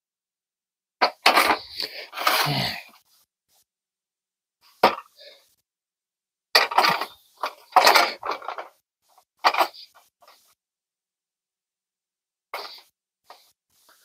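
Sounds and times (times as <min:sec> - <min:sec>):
metal tubes scraping and clattering: 0:06.6 - 0:08.7.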